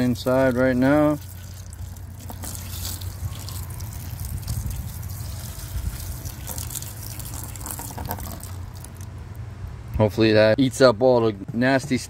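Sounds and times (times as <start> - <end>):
water pouring and splashing into a tub: 0.0 - 9.1.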